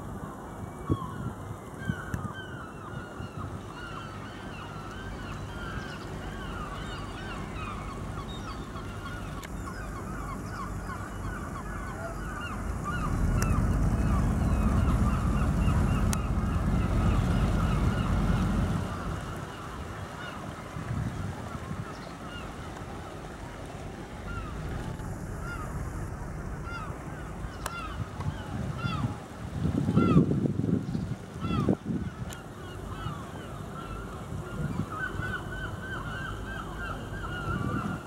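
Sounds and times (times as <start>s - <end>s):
flock of birds calling: 1.8s - 20.5s, 24.2s - 29.3s, 31.4s - 38.0s
low rumble: 12.5s - 19.4s, 23.7s - 29.6s.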